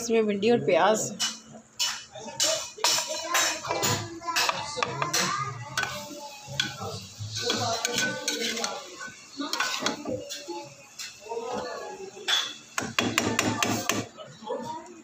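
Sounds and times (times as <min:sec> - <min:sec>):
metal spatula scraping a pot: 0:01.2 - 0:11.2.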